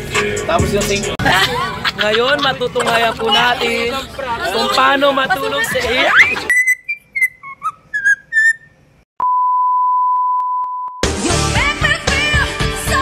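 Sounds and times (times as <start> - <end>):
electronic bleep: 6.1 - 11.0
whistled bird-like chirps: 6.2 - 8.8
woman singing with music: 11.0 - 13.0.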